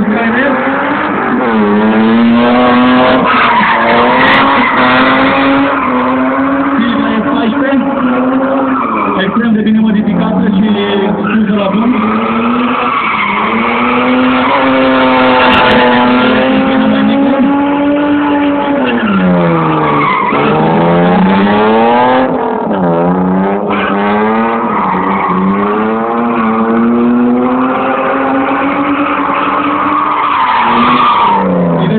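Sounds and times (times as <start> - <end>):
car engine revving high: 0.0 - 31.9
tyres screeching: 2.4 - 22.0.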